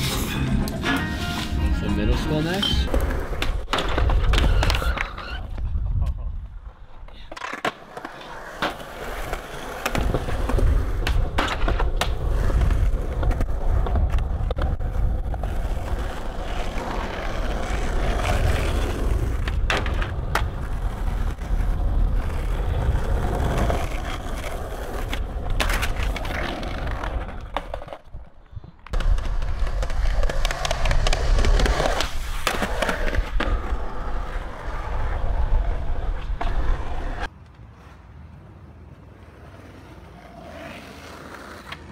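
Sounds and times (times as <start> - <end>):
skateboard wheels rolling on concrete: 0.0 - 41.9
skateboard clacks: 2.9 - 5.7, 7.0 - 28.2, 28.8 - 33.8.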